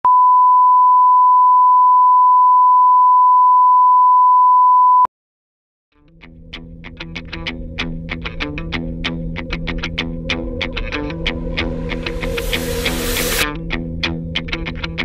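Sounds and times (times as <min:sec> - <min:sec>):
music: 0:05.9 - 0:15.0.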